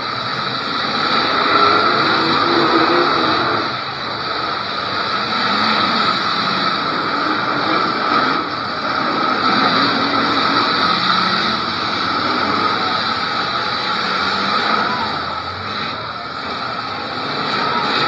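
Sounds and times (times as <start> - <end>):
car engines revving: 0.0 - 18.0.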